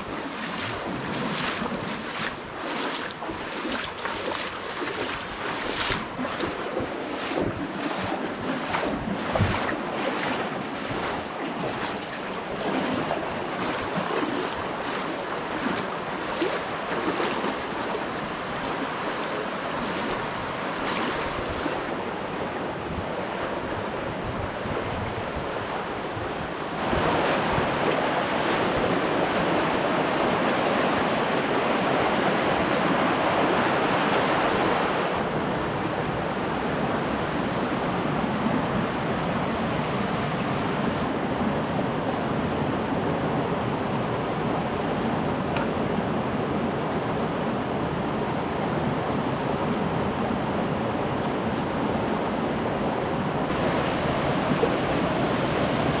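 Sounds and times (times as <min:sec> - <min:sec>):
creek rushing over rocks: 0:00.0 - 0:37.2, 0:53.4 - 0:56.0.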